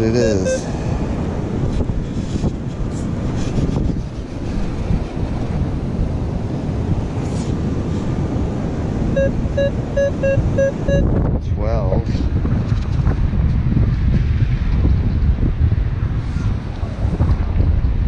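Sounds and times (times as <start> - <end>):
wind buffeting microphone: 0.0 - 18.0
metal detector beeps: 0.2 - 0.7, 9.2 - 11.1.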